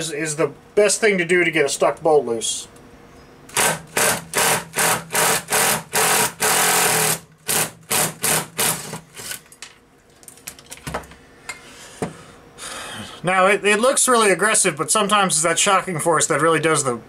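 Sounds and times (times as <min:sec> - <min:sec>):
impact driver hammering: 0:03.5 - 0:09.0.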